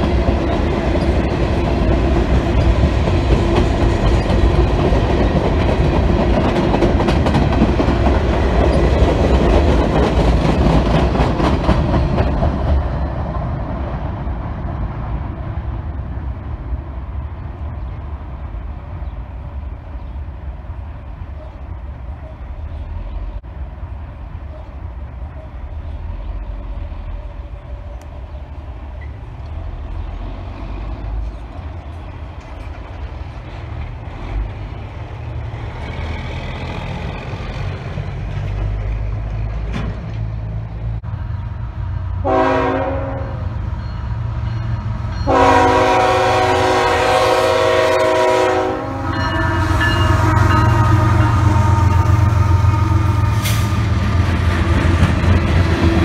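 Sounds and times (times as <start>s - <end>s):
locomotive engine rumble: 0.0s - 56.0s
train horn blasts: 42.2s - 43.5s, 45.2s - 54.0s.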